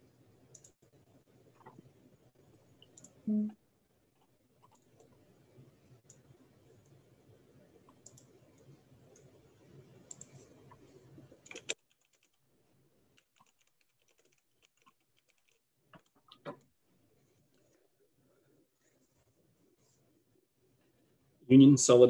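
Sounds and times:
keyboard and mouse clicks: 0:00.5 - 0:00.9, 0:02.8 - 0:03.2, 0:04.2 - 0:05.2, 0:07.8 - 0:09.4, 0:10.0 - 0:12.4, 0:13.1 - 0:16.7
low hiss: 0:16.3 - 0:22.0.

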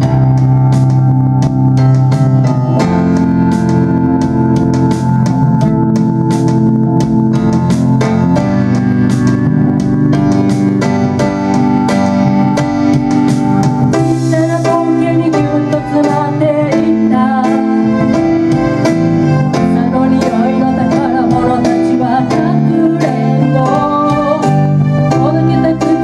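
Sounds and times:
electric bass: 0:00.0 - 0:26.0
synthesizer keyboards: 0:00.0 - 0:26.0
person singing: 0:14.0 - 0:26.0.

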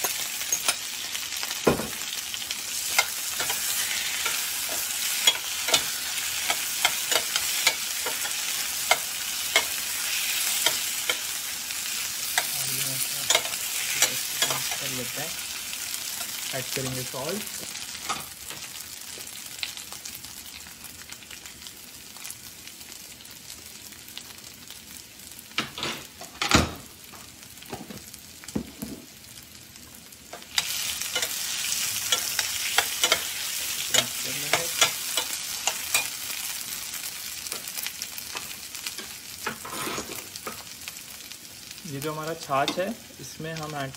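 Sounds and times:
potatoes sizzling in pan: 0:00.0 - 0:43.9.

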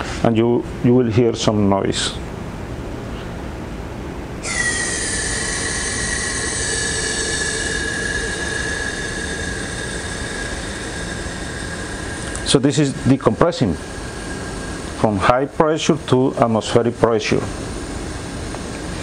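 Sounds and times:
high whistling gas hiss: 0:04.4 - 0:19.0.

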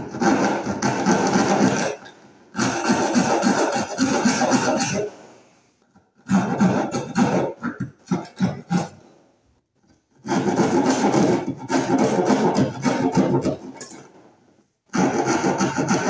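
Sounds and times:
hand saw cutting wood: 0:00.0 - 0:05.2, 0:06.2 - 0:09.1, 0:10.2 - 0:14.1, 0:14.9 - 0:16.0.

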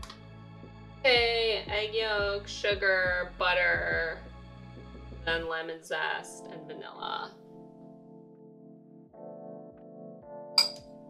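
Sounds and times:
background music sustained tones: 0:00.0 - 0:11.0
metal whisk clinking glass bowl: 0:10.6 - 0:10.8.

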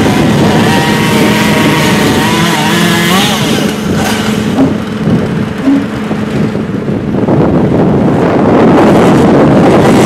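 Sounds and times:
engine running: 0:00.0 - 0:10.0
short engine blips: 0:05.6 - 0:06.0.

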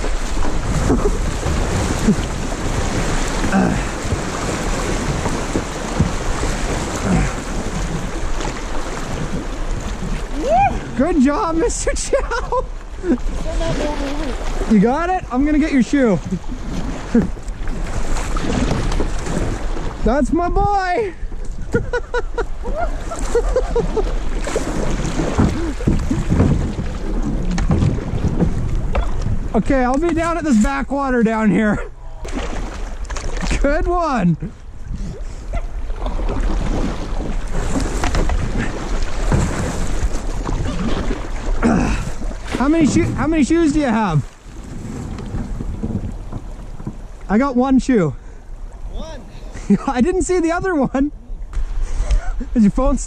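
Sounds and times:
river water rushing: 0:00.0 - 0:12.0
water gurgling: 0:00.0 - 0:21.0, 0:36.0 - 0:47.6
wind buffeting microphone: 0:00.0 - 0:30.9, 0:31.7 - 0:47.7.

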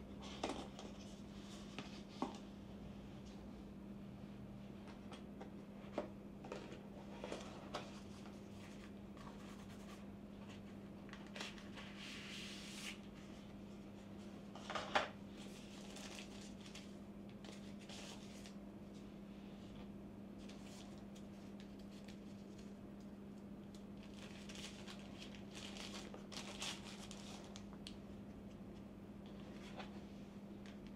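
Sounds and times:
steady low hum: 0:00.0 - 0:30.9.

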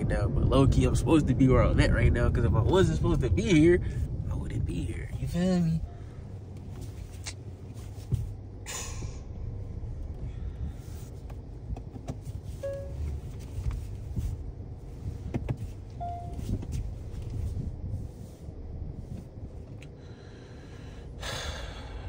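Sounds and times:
car engine and tyres rumbling: 0:00.0 - 0:22.0.

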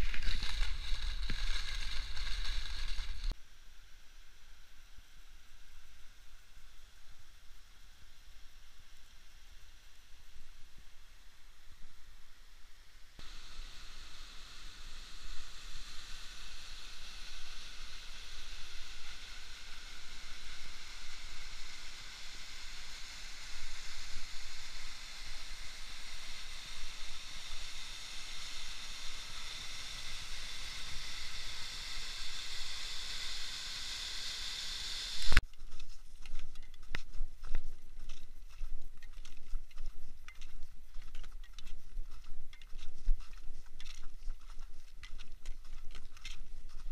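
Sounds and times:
footsteps crunching on snow: 0:00.0 - 0:03.4, 0:35.2 - 0:46.9.

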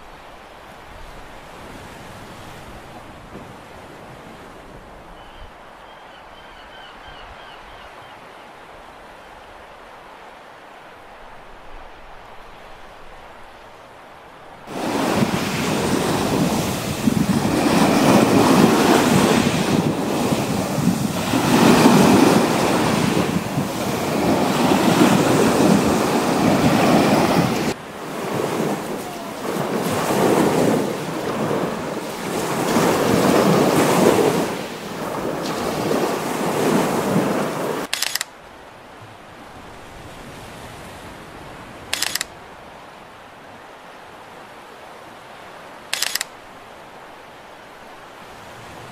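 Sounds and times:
waves washing over pebbles: 0:14.7 - 0:37.9.

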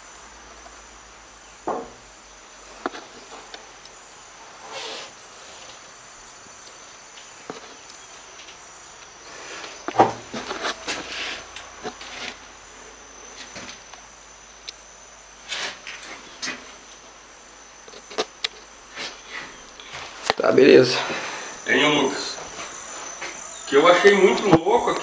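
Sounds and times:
insects chirring: 0:00.0 - 0:25.0
rustling: 0:02.6 - 0:14.1, 0:15.4 - 0:17.2
footsteps: 0:09.3 - 0:12.5, 0:17.9 - 0:25.0.

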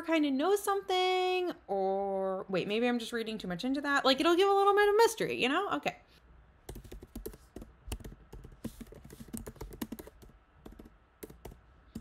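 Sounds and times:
typing on computer keyboard: 0:06.7 - 0:12.0.

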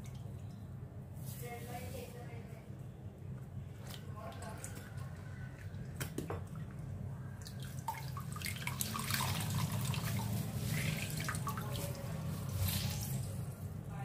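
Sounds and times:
water dripping into bowl: 0:03.8 - 0:11.9.

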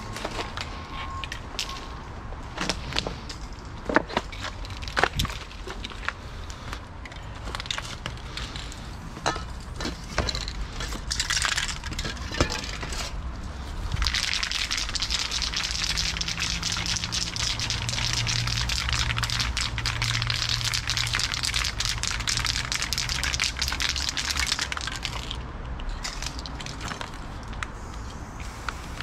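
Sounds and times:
metal spray cans clinking: 0:07.2 - 0:13.2, 0:14.0 - 0:29.0
aerosol can spraying hiss: 0:27.8 - 0:29.0.

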